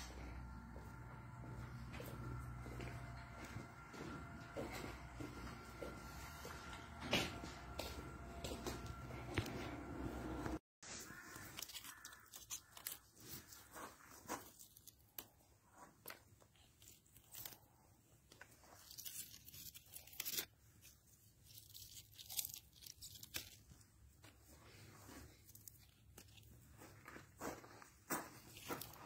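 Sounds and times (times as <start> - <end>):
steady hum: 0.0 - 10.6
plant leaves crackling and rustling: 10.9 - 26.6.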